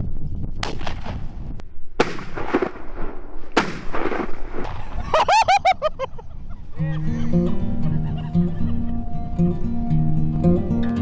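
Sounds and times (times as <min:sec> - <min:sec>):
shotgun shots: 0:00.6 - 0:01.2, 0:02.0 - 0:04.7.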